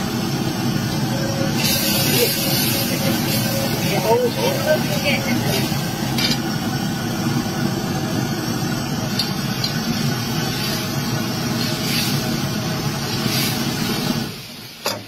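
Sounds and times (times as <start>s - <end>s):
food sizzling in a wok: 0.0s - 15.0s
gas burner flame roaring: 0.0s - 15.0s.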